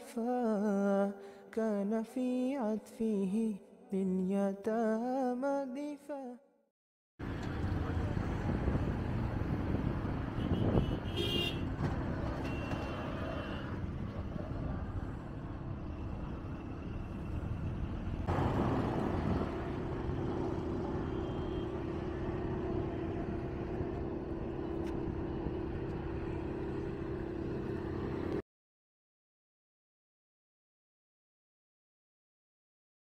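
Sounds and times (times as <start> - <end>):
rumble of motor vehicles: 7.2 - 28.4
steady engine hum: 7.2 - 28.4.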